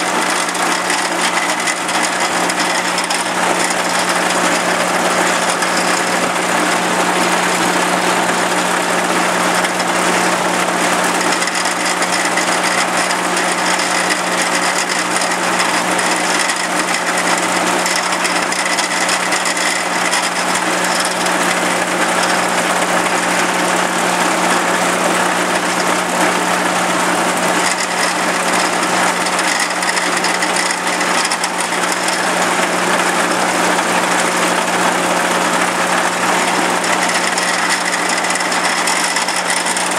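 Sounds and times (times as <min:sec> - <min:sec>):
tractor and harvester running: 0:00.0 - 0:39.9.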